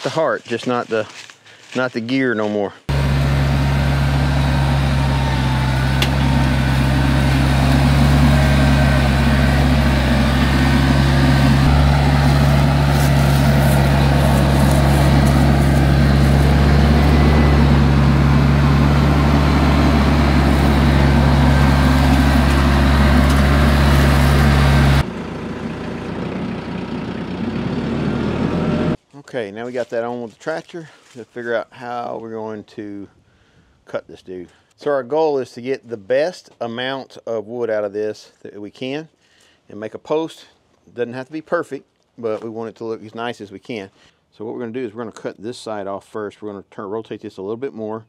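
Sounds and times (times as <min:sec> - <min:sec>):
tractor diesel engine running: 0:02.9 - 0:29.0.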